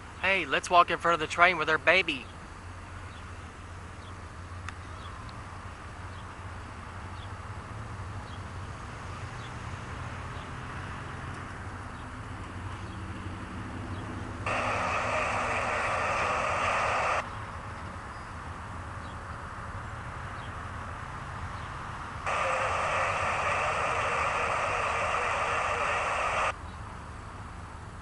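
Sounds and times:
locomotive air horn blast: 22.3 - 25.8.

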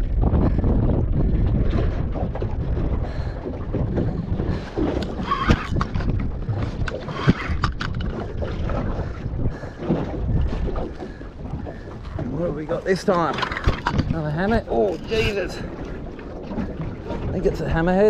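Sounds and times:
wind rumbling on microphone: 0.0 - 18.0
sharp clicks and knocks: 4.9 - 8.2.

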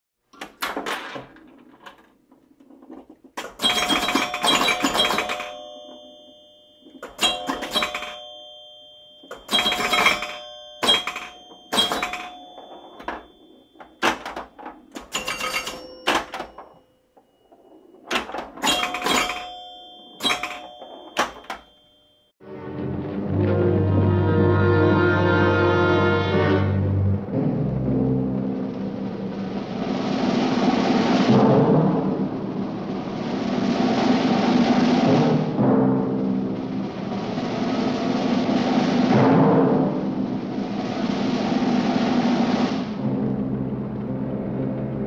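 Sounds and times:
bell-like ringing tones: 3.4 - 22.4.

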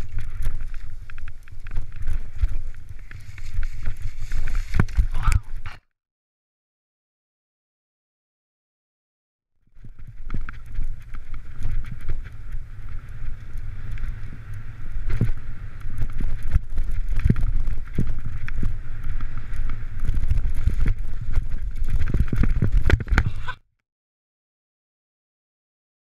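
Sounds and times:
bicycle rattling over dirt trail: 0.0 - 5.8, 9.7 - 23.6
wind rumble on microphone: 0.0 - 5.8, 9.7 - 23.6.

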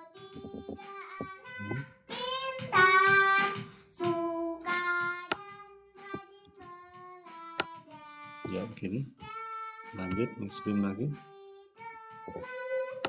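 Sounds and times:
person singing long notes: 0.4 - 1.9, 9.3 - 11.2.

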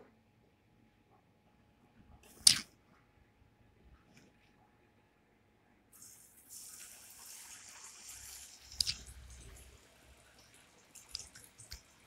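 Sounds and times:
food deep-frying in oil: 6.0 - 12.0
spitting oil crackle: 6.6 - 12.0.

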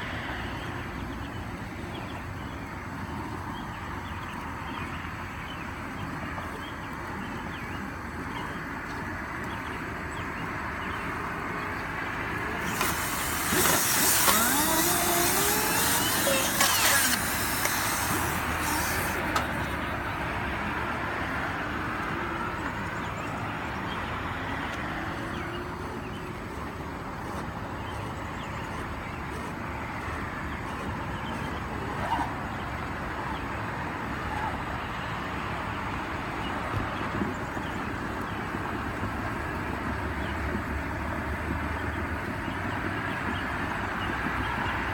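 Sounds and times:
air hiss: 12.6 - 19.6
rush of compressed air: 12.6 - 19.6
sliding tones: 12.6 - 19.9.

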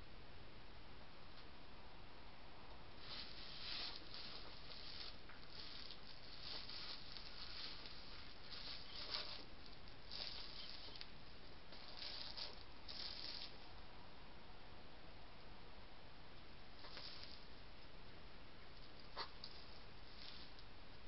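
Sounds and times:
hedgehogs huffing and rustling: 3.0 - 11.1, 11.7 - 13.7.

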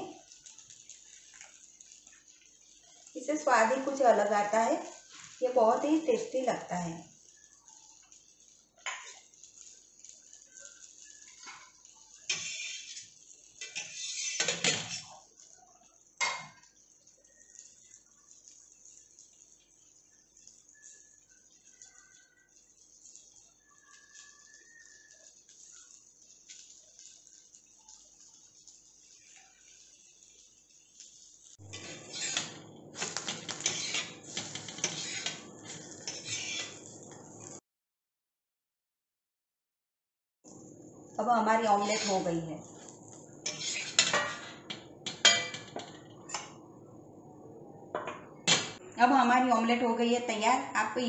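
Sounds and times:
metal spatula clattering and scraping: 11.3 - 15.2, 31.7 - 37.0, 41.8 - 42.3, 43.4 - 46.6.

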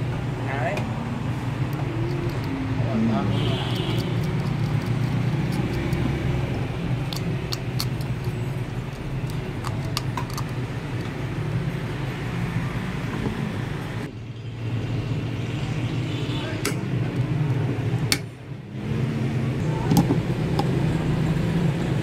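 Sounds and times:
screwdriver clicking on screws: 3.8 - 6.1, 7.0 - 11.1.

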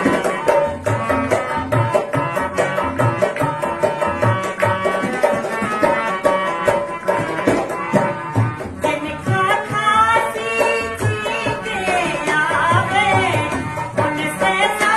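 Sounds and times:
dholak drum rhythm: 0.0 - 14.9
harmonium reedy melody: 0.0 - 14.9.

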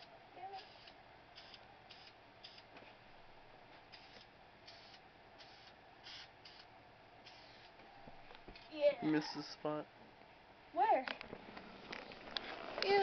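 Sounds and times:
aerosol spray can hissing: 0.6 - 2.7, 3.9 - 7.7.

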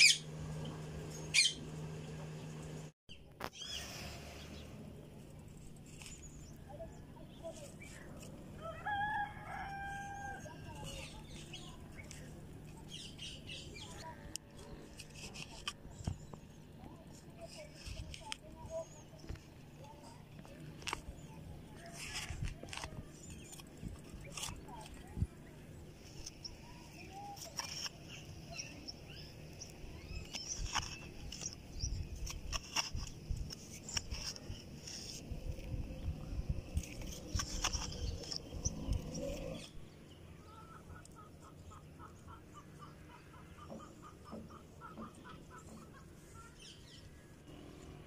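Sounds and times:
rooster crowing: 8.6 - 10.6
trowel scraping soil: 27.0 - 36.0, 36.6 - 39.8.

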